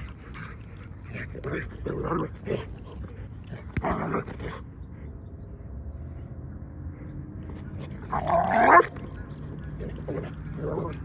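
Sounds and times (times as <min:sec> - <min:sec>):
dogs playing roughly: 0:00.0 - 0:04.7.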